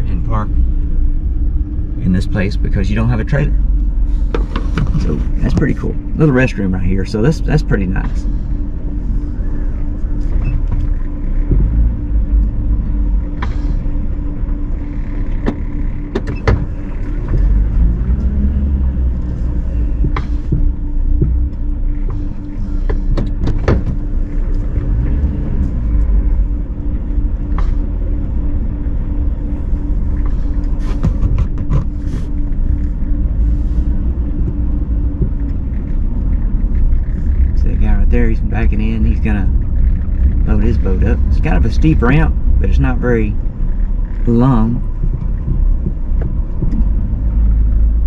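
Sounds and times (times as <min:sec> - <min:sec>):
car engine rumble: 0:00.0 - 0:48.0
road noise: 0:00.0 - 0:48.0.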